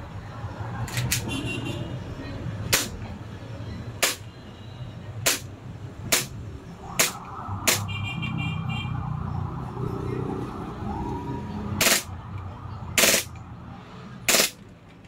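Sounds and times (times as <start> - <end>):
airsoft pistol shots: 5.3 - 5.5, 14.3 - 14.6.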